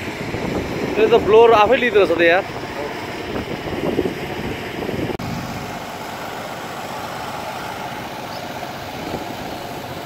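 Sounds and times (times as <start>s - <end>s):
steady engine drone: 0.0s - 10.0s.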